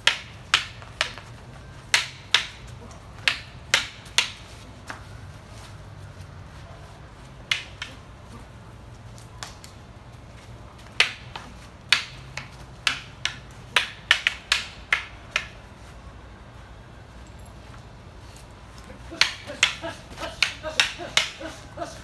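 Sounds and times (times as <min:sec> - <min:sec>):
wooden swords clacking: 0:00.0 - 0:05.2, 0:07.4 - 0:08.4, 0:09.2 - 0:15.7, 0:18.3 - 0:22.0.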